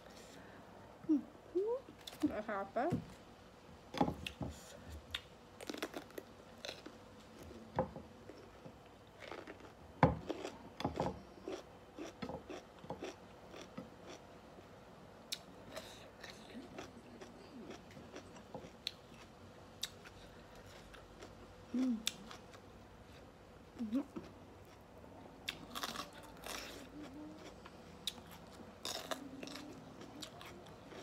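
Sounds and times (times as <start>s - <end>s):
crunching raw vegetables: 5.1s - 7.5s, 25.4s - 31.0s.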